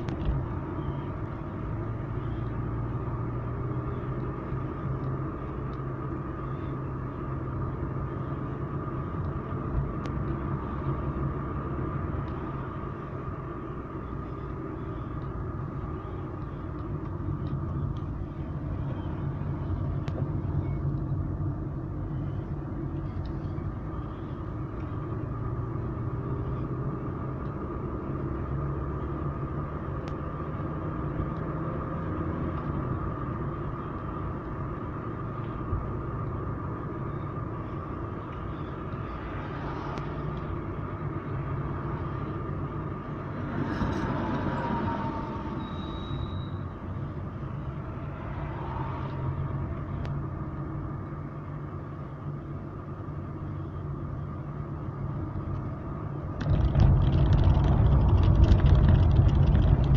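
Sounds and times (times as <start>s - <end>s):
car engine and tyre rumble: 0.0s - 59.9s.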